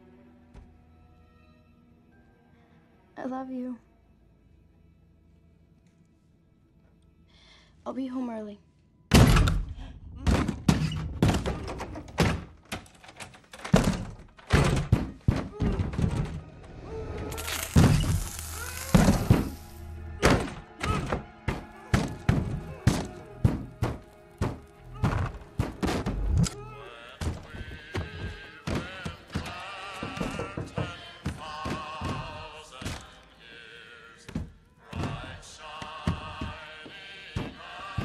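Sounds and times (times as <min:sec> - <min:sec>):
film music: 0:00.0 - 0:10.6, 0:15.4 - 0:38.0
fists pounding on wooden door: 0:13.8 - 0:16.4.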